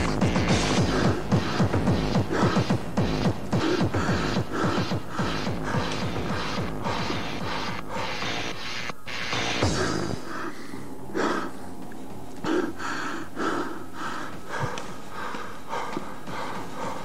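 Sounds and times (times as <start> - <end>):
techno noise bursts: 0.0 - 11.3.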